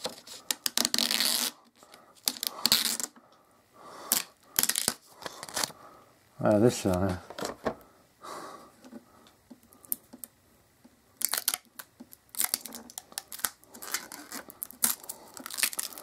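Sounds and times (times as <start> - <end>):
plastic film peeling and crinkling: 0.0 - 3.2, 4.1 - 5.8, 11.2 - 16.0.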